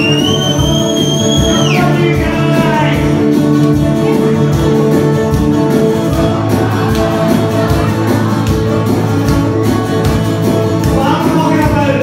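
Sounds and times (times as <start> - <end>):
acoustic guitar strumming: 0.0 - 12.0
man singing: 1.0 - 4.5, 10.9 - 12.0.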